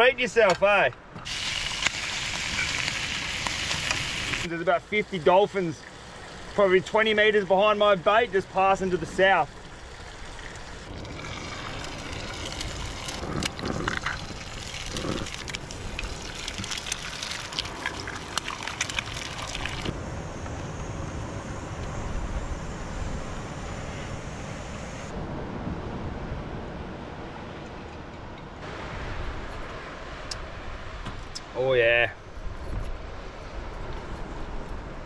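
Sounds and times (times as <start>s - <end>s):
eggs and bacon sizzling: 1.2s - 7.3s, 8.7s - 20.0s
wind noise: 8.8s - 31.6s.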